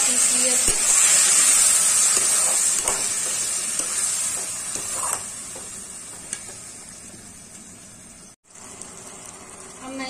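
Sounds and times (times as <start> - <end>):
paste sizzling in hot oil: 0.0 - 10.0
spatula scraping and knocking pan: 0.6 - 6.6.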